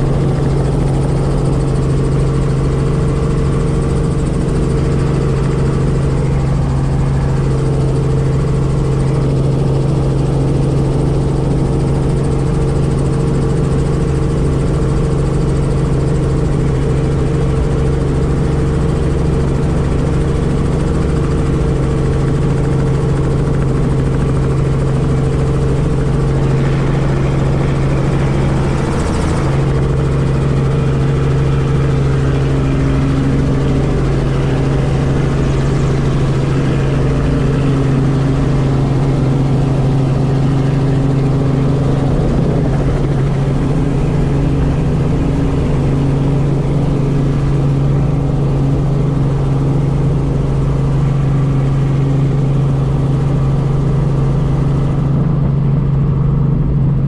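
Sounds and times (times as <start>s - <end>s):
helicopter engine and rotors: 0.0s - 57.0s.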